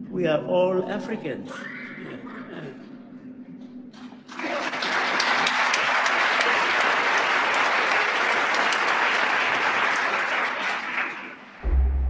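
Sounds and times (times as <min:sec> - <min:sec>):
audience applauding: 0:04.0 - 0:11.6.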